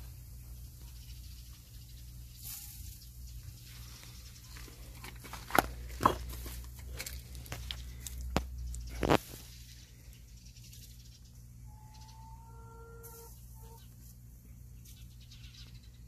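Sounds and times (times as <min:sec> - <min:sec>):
steady low hum: 0:00.0 - 0:16.0
faint bird chirps: 0:08.6 - 0:16.0.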